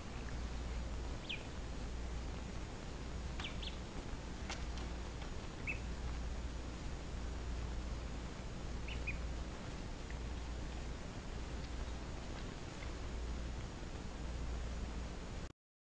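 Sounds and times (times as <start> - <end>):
duckling peeping: 0.0 - 13.6
steady low hum: 0.0 - 15.5.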